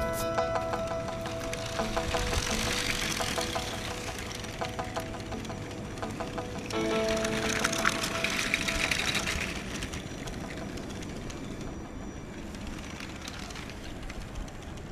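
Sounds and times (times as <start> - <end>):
toy train wheels rattling: 1.0 - 14.9
toy train motor hum: 1.4 - 5.6.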